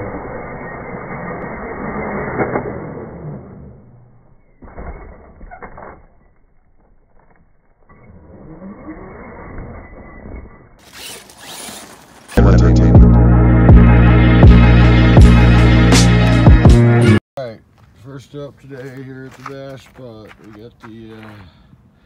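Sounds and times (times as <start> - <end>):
rc truck motor whining: 0.0 - 5.4, 7.9 - 12.4.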